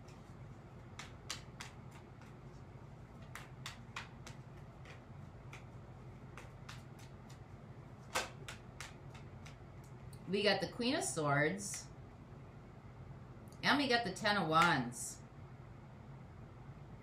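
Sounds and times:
cards being shuffled: 0.0s - 10.0s
steady low hum: 0.0s - 17.0s.

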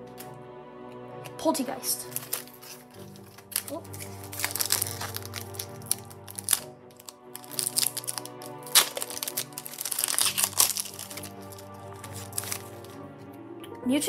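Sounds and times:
background music: 0.0s - 14.0s
foil wrapper crinkling: 2.0s - 13.0s.

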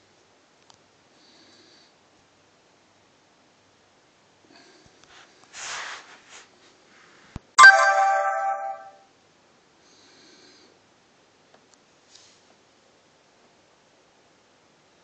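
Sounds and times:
click: 0.6s - 0.8s
soft rustle: 5.1s - 7.4s
tablet electronic chime: 7.6s - 9.0s.

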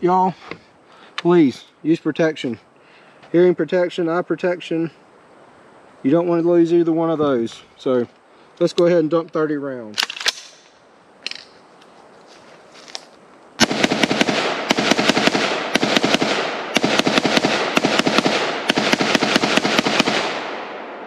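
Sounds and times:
rifle firing rapid shots: 13.6s - 21.0s.

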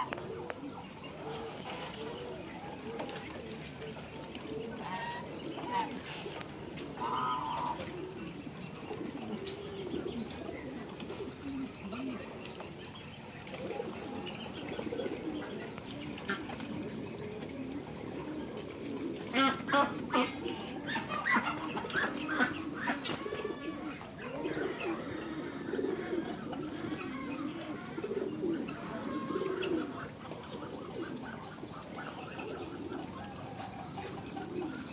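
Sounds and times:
ducks calling softly: 0.0s - 3.7s, 4.7s - 8.3s.

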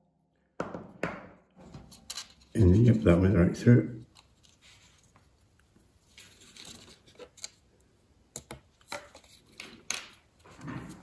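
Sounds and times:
paper rustling: 4.1s - 7.7s.

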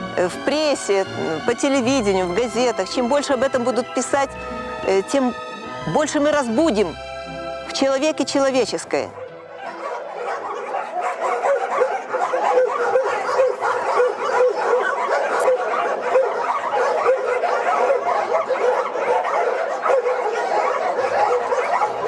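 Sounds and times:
dogs barking and yelping: 8.7s - 22.0s.

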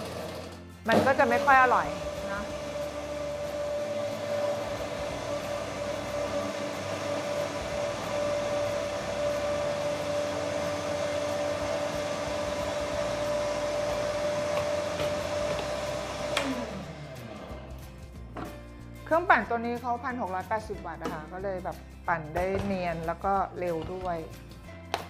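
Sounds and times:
blender crushing ice: 0.0s - 17.7s.

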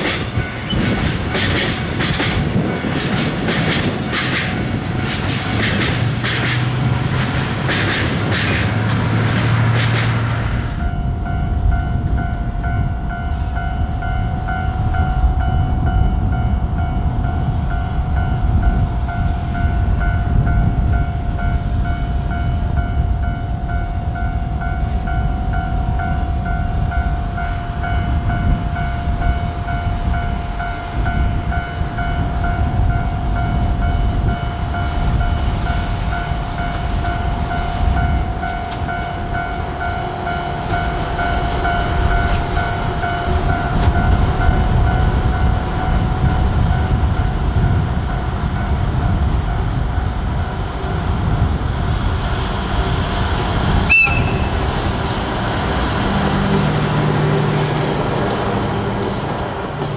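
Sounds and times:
diesel locomotive rumbling: 0.0s - 59.9s
brief high beep: 53.9s - 54.5s.

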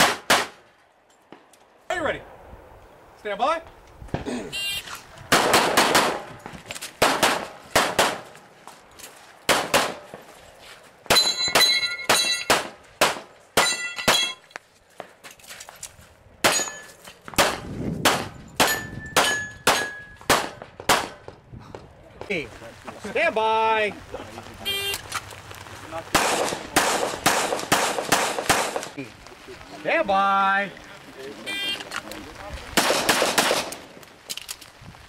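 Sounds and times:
pistol shots: 0.0s - 0.6s, 5.3s - 6.3s, 7.0s - 8.3s, 9.5s - 10.1s, 11.1s - 14.4s, 17.4s - 21.3s, 26.1s - 28.9s, 32.8s - 33.9s
steel targets ringing: 11.1s - 12.5s, 13.6s - 14.4s, 18.6s - 20.2s.

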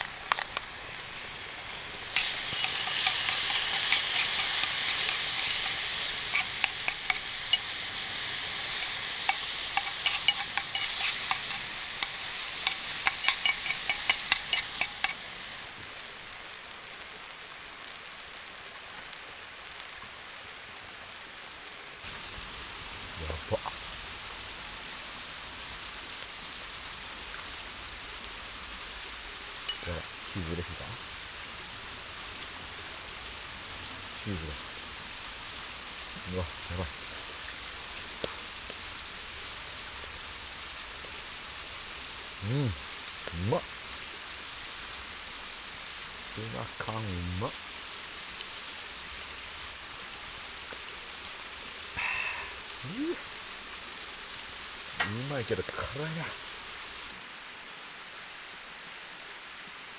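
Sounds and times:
gas camp burner hissing: 0.0s - 15.8s, 27.6s - 57.2s
faint crackles: 0.0s - 25.0s, 25.6s - 57.2s
food sizzling in a pan: 0.0s - 59.7s.

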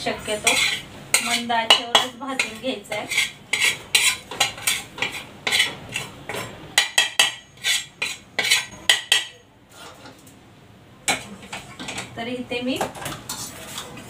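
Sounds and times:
spatula scraping in a pan: 0.3s - 10.2s, 13.0s - 14.0s.

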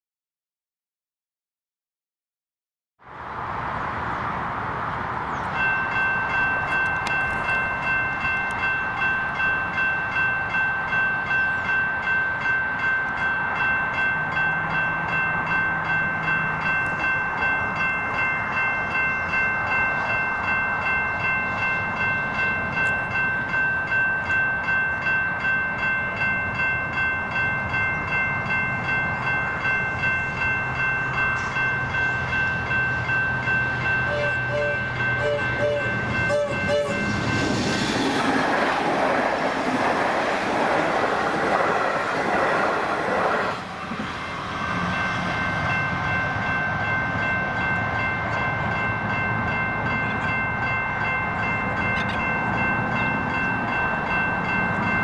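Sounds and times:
level crossing warning bell: 5.3s - 37.6s, 44.7s - 55.0s.

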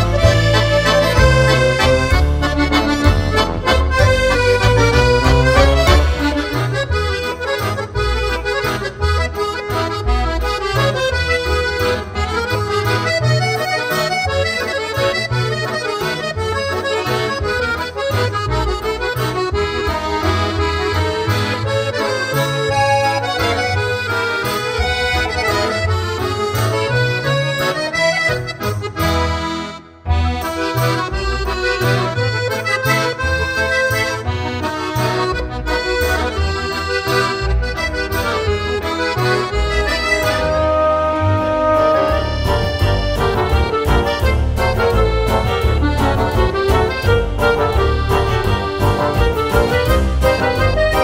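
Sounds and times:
instrumental background music: 0.0s - 51.0s.

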